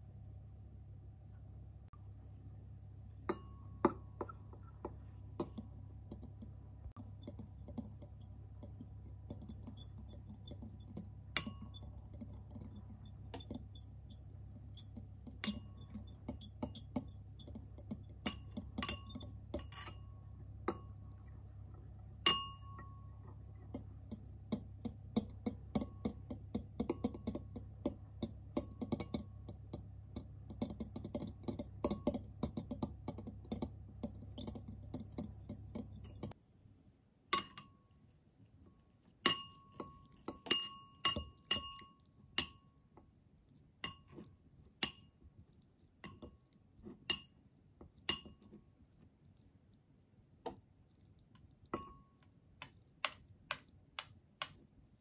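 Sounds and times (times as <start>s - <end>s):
low steady hum: 0.0s - 55.0s
fork clinking on glass bowl: 9.3s - 21.0s, 22.2s - 23.8s, 37.4s - 37.8s, 39.2s - 42.8s, 43.8s - 45.2s, 47.1s - 47.4s, 48.1s - 48.5s.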